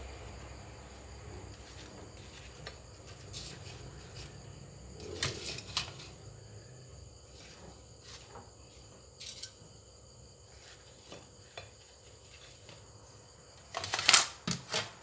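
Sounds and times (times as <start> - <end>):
faint high hum: 0.0 - 7.8.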